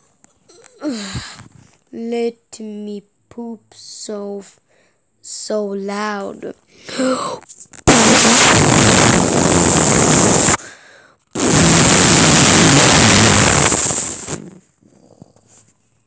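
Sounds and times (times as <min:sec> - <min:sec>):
mock fart noise: 0:07.8 - 0:10.6, 0:11.4 - 0:14.8.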